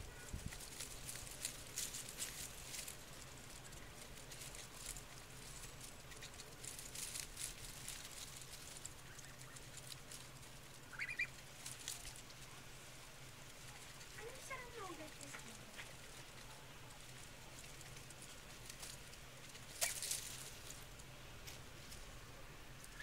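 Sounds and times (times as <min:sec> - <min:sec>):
leaves rustling: 0:00.0 - 0:23.0
goose bill pecking clicks: 0:00.6 - 0:12.5.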